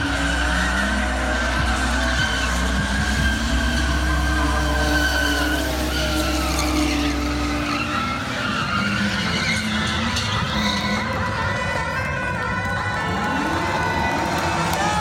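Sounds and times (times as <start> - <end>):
tyres squealing: 0.0 - 11.1
engine running hard: 0.0 - 15.0.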